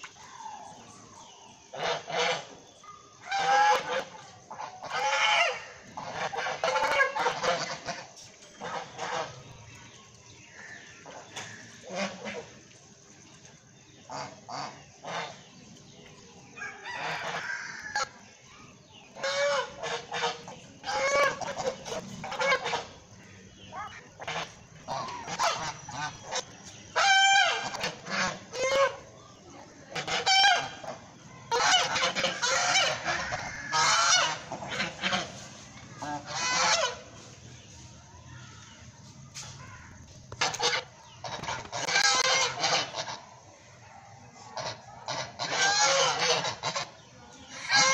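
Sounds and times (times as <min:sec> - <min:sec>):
geese honking: 0:01.7 - 0:02.6, 0:03.2 - 0:09.5, 0:16.6 - 0:18.1, 0:19.2 - 0:29.2, 0:29.9 - 0:37.2, 0:40.3 - 0:43.4, 0:44.6 - 0:47.9.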